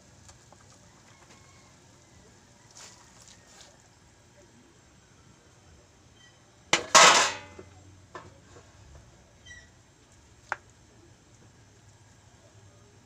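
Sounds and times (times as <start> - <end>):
metal cookware clanking on pan: 6.8 - 7.7.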